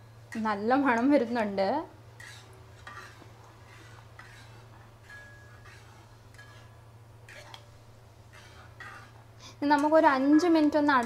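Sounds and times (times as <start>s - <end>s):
low steady hum: 0.0s - 11.0s
spatula scraping a pan: 2.2s - 11.0s.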